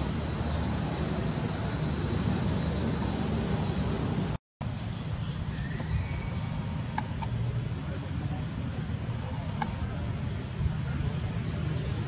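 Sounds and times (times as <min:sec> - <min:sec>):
insects droning: 0:00.0 - 0:12.0
low outdoor rumble: 0:00.0 - 0:12.0.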